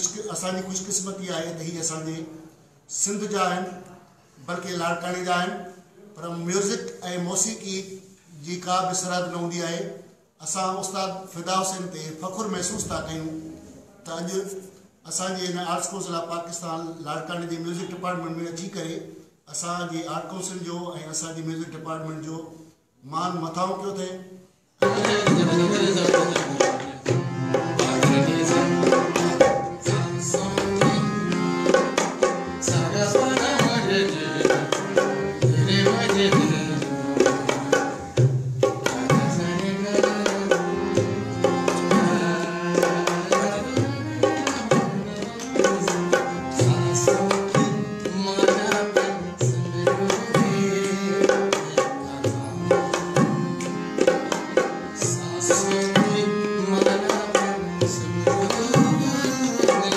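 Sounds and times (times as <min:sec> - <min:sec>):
harmonium melody: 0:24.8 - 0:59.9
tabla drumming: 0:24.8 - 0:59.9.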